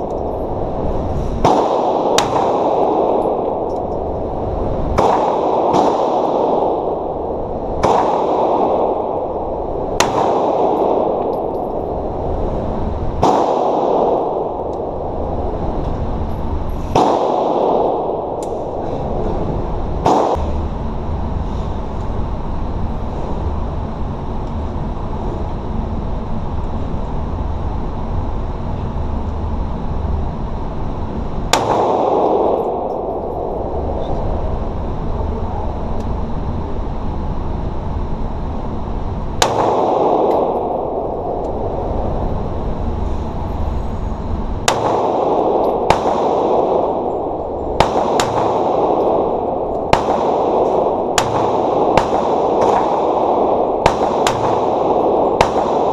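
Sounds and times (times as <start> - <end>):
pistol shots ringing indoors: 0.0 - 18.8, 19.5 - 20.6, 30.9 - 35.1, 38.0 - 42.6, 44.6 - 55.9
steady low rumble: 0.0 - 55.9.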